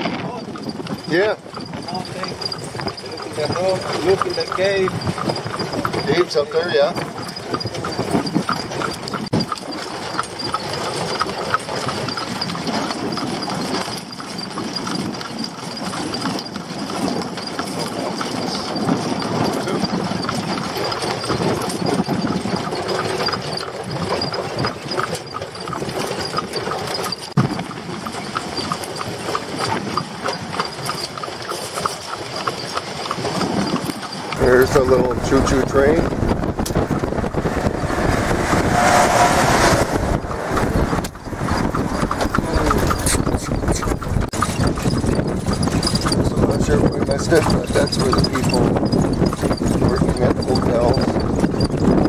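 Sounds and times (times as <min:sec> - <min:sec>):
horse hooves clip-clopping on pavement: 0:00.0 - 0:52.0.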